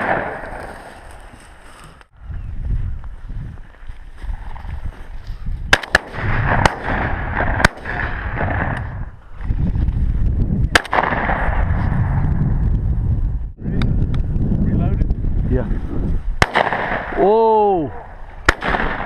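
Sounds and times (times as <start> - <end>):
shotgun shots: 0.0 - 0.8, 5.7 - 8.9, 10.7 - 11.6, 16.4 - 17.2, 18.4 - 19.0
wind rumbling on microphone: 0.0 - 19.0.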